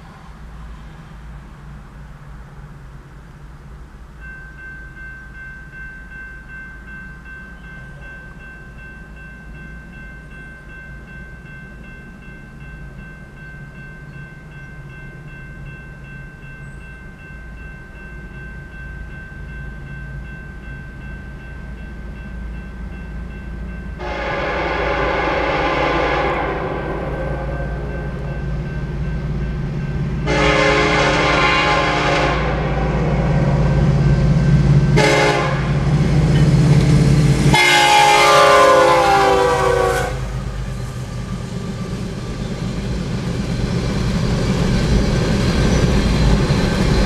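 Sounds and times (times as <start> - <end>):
approaching train noise: 0.0 - 47.0
railroad crossing warning bell: 2.3 - 47.0
locomotive horn blast: 24.0 - 28.3, 30.2 - 33.8, 34.9 - 36.0, 37.5 - 40.5.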